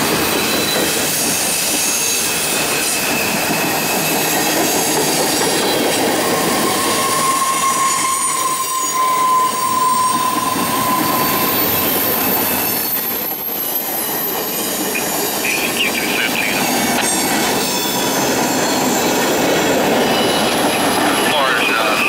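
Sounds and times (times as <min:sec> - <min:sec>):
train wheels rolling and rattling: 0:00.0 - 0:22.0
thin wheel squeal: 0:05.6 - 0:15.4, 0:17.1 - 0:19.3.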